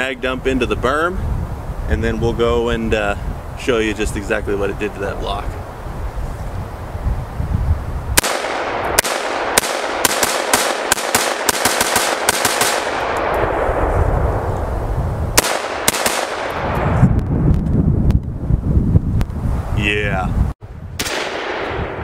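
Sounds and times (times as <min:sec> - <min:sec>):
rifle shots with rolling echo: 0:08.2 - 0:14.5, 0:15.4 - 0:16.8, 0:21.0 - 0:22.0.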